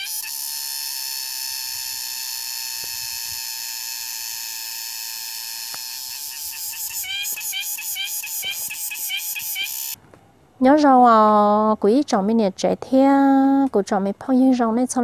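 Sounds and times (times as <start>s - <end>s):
rapid repeated chirping: 0.0s - 0.4s, 5.9s - 10.0s
high-pitched buzzing drone: 0.0s - 10.0s.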